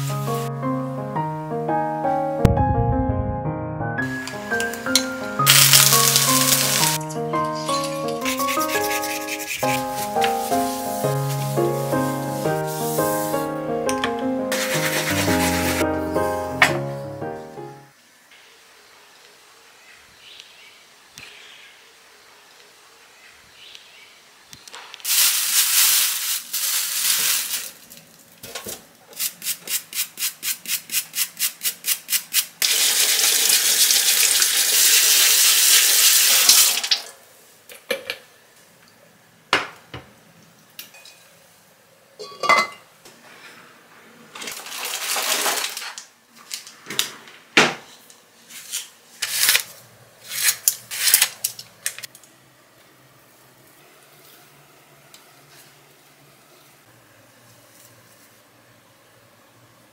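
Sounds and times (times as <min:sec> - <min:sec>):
rhythmic scrubbing strokes: 0:08.2 - 0:13.2, 0:14.5 - 0:15.9
kitchen tap running: 0:32.6 - 0:37.1.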